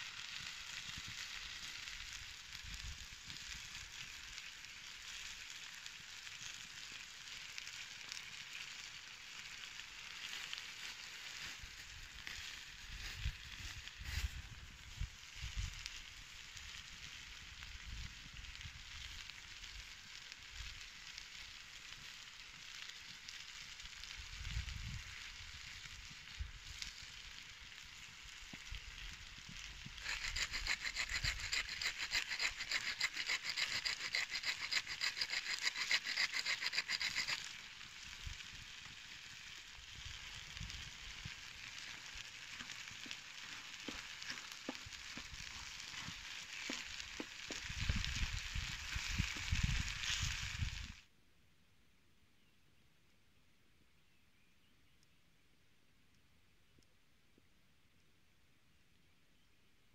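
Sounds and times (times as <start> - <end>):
food sizzling in a pan: 0.0 - 51.0
wooden spoon stirring in pan: 29.6 - 37.6, 41.4 - 49.6.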